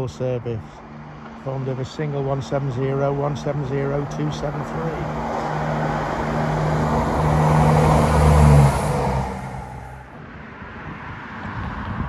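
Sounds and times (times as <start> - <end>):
diesel train passing: 0.6 - 10.2.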